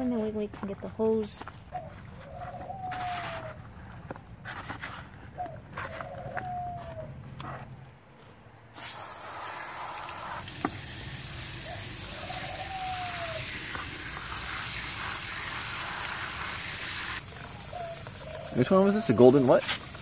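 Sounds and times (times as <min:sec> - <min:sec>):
hose nozzle spraying water: 0:08.8 - 0:20.0.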